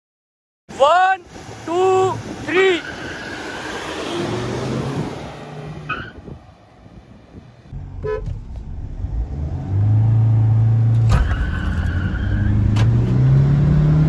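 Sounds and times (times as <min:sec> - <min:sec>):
diesel engine accelerating: 0:07.7 - 0:14.0.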